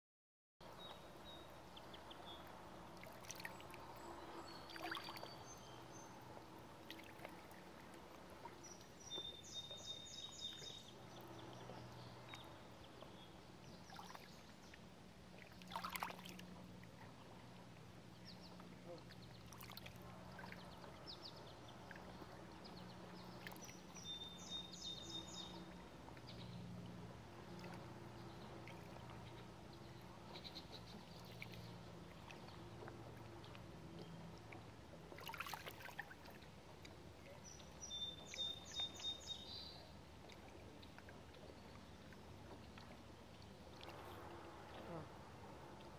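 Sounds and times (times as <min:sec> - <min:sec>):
ripples lapping against rocks: 0:02.8 - 0:09.4, 0:15.3 - 0:17.1, 0:19.4 - 0:22.5, 0:31.2 - 0:39.2.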